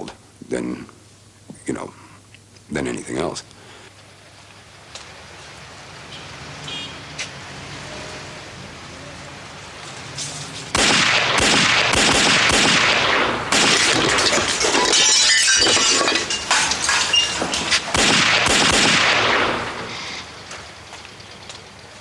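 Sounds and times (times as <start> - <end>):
rapid revolver shots: 10.7 - 14.5, 17.9 - 19.9
glass shattering: 13.5 - 18.4.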